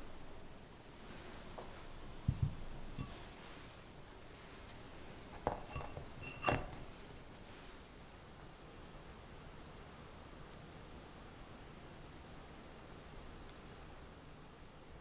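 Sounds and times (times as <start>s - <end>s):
ceramic clink: 3.0s - 3.3s, 5.4s - 6.9s.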